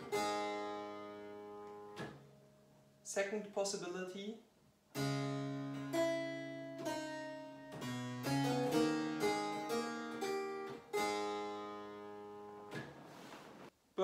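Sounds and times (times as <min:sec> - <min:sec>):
early keyboard playing chords: 0:00.0 - 0:02.4, 0:05.0 - 0:13.0.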